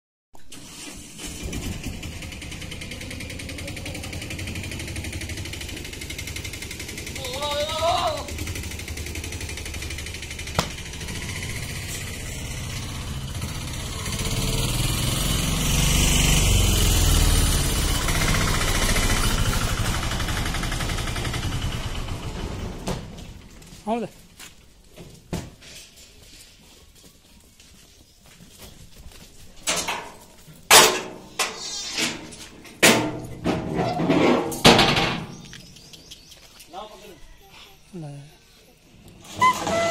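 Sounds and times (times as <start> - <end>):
engine running: 0.5 - 23.7.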